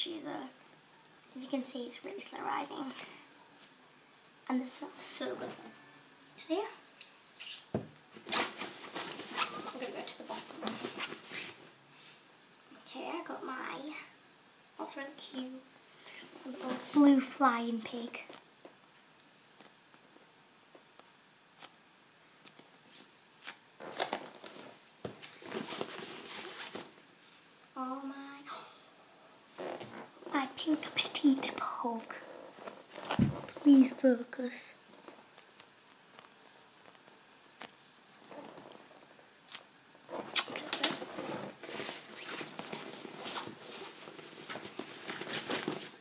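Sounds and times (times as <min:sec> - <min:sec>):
bag rustling and crinkling: 0:08.2 - 0:11.6, 0:25.4 - 0:26.9, 0:40.1 - 0:46.0.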